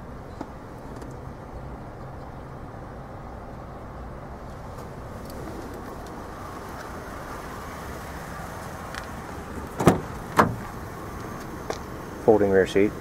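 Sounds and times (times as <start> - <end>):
car door clunks: 9.6 - 11.5.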